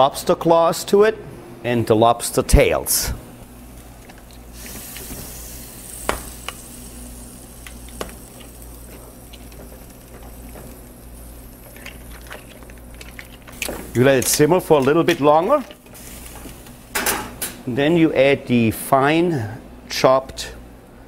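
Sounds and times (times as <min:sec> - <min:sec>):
food sizzling in a pan: 0:03.4 - 0:12.9.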